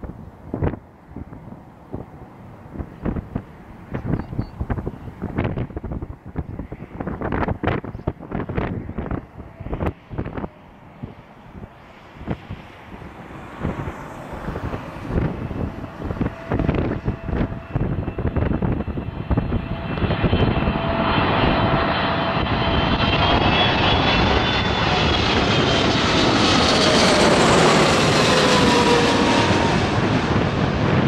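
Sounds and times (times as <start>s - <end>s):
jet engines flying overhead: 0.0s - 31.0s
wind buffeting microphone: 0.0s - 31.0s.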